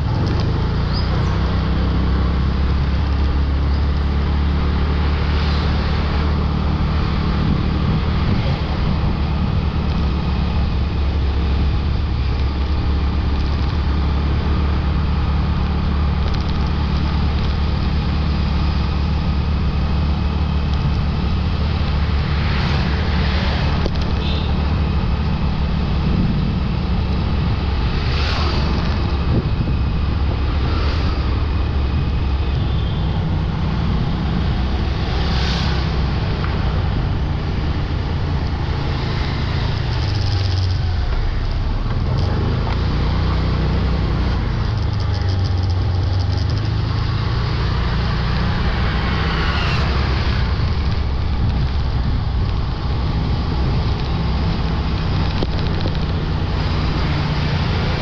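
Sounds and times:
motorbike engine and road noise: 0:00.0 - 0:58.0
vehicles passing by: 0:00.0 - 0:58.0.

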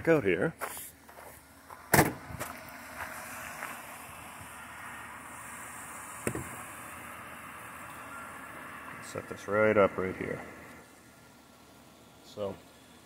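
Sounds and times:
car engine idling: 0:00.9 - 0:13.0
loud sharp knock: 0:06.2 - 0:06.5.

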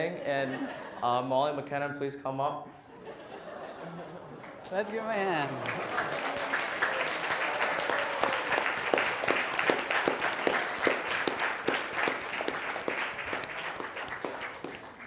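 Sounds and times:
audience applauding: 0:03.6 - 0:15.0.

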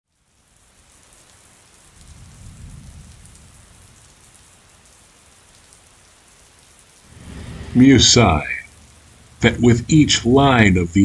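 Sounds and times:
steady rain: 0:00.0 - 0:11.0
low rumble: 0:07.0 - 0:09.8.

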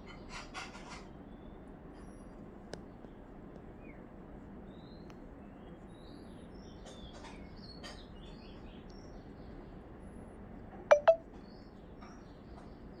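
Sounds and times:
small birds chirping: 0:00.0 - 0:09.9.

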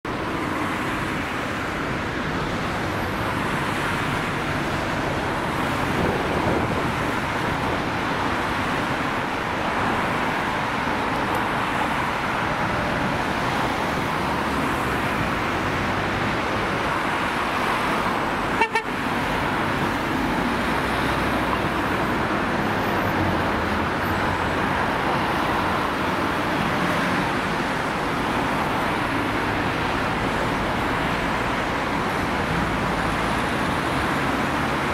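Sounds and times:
city road traffic: 0:00.0 - 0:34.9.

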